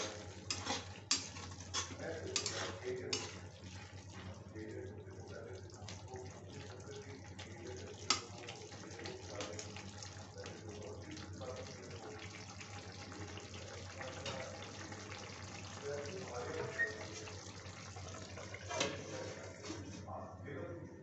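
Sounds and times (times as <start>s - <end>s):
metal spatula scraping a pan: 0.0s - 3.5s, 18.5s - 20.0s
vegetables simmering and crackling: 0.0s - 20.1s.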